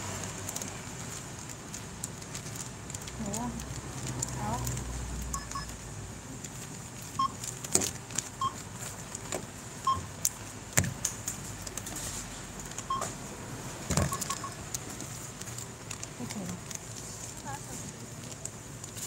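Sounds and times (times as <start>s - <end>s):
barcode scanner beeps: 5.3s - 5.7s, 14.0s - 14.6s.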